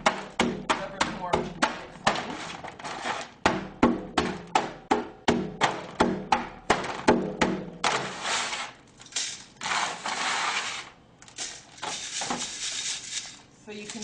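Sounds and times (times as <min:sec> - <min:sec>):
soil scraping through sieve: 0:02.2 - 0:03.4, 0:07.9 - 0:08.8, 0:09.6 - 0:11.0.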